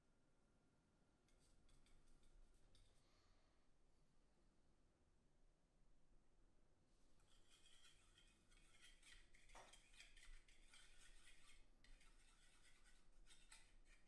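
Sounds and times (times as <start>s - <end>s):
metal rod stirring in plastic cup: 7.2s - 14.0s.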